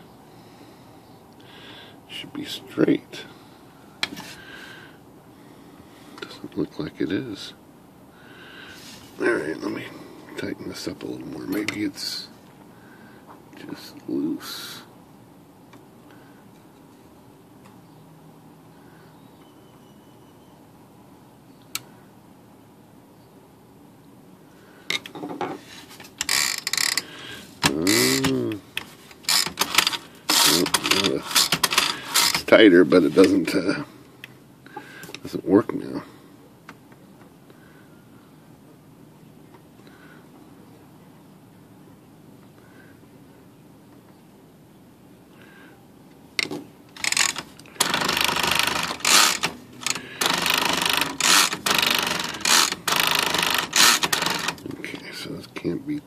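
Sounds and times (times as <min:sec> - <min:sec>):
typewriter mechanism clicking: 0:29.2 - 0:32.5, 0:46.4 - 0:54.6.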